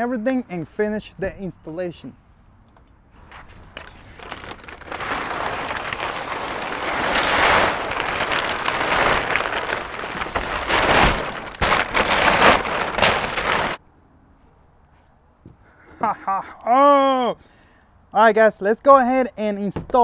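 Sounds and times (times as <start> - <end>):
plastic wrap crackling: 3.3 - 13.8.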